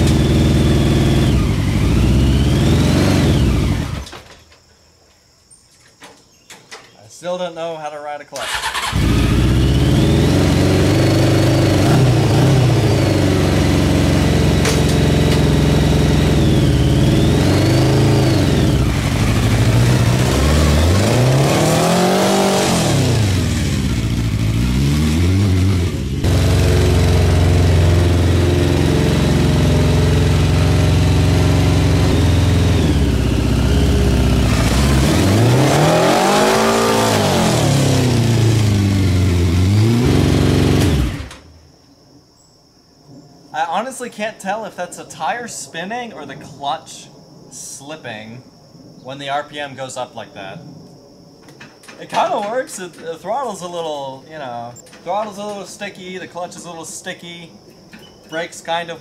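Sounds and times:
motorcycle engine revving: 0.0 - 4.2, 8.4 - 41.6.

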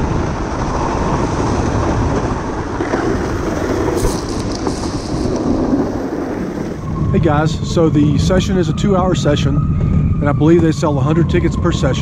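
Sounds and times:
sled scraping on snow: 0.0 - 7.0
snow spray crackles: 0.8 - 6.8.

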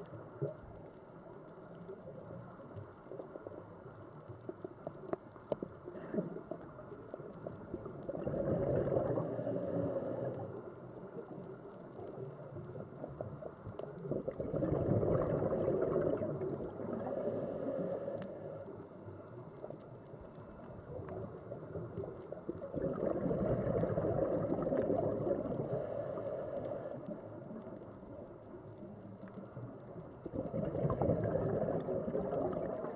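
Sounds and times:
exhaled bubbles gurgling underwater: 0.0 - 32.9
regulator breath hiss: 17.0 - 18.8, 25.6 - 27.2.

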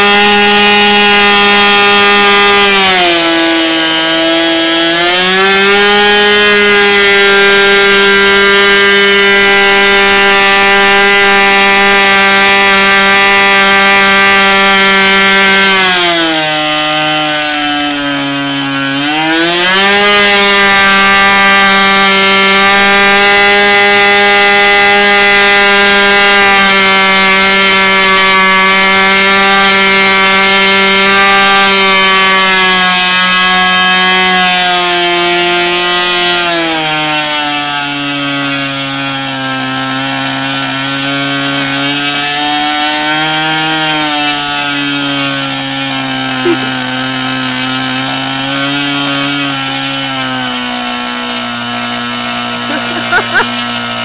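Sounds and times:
model airplane engine buzzing: 0.0 - 4.8, 44.3 - 54.0.

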